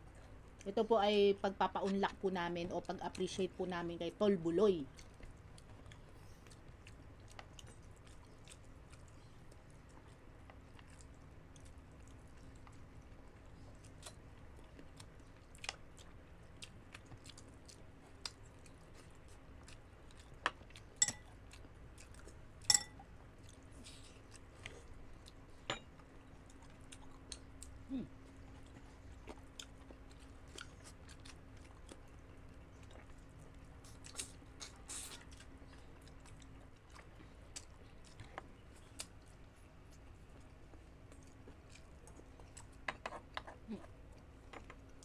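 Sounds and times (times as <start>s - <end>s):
close chewing and mouth clicks: 0.0s - 0.8s, 2.2s - 45.0s.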